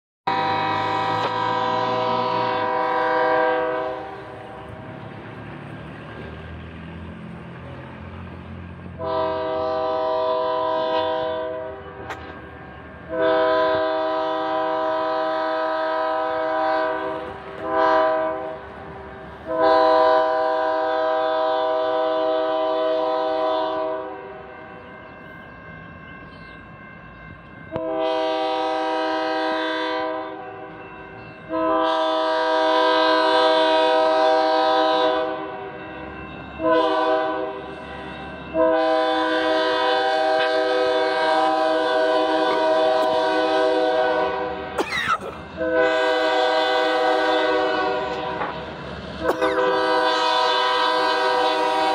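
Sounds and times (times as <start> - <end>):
locomotive air horn blasts: 0.3 - 4.7, 9.0 - 12.4, 13.1 - 18.6, 19.4 - 24.5, 27.7 - 30.8, 31.5 - 35.7, 36.6 - 37.7, 38.5 - 48.6, 49.2 - 51.9.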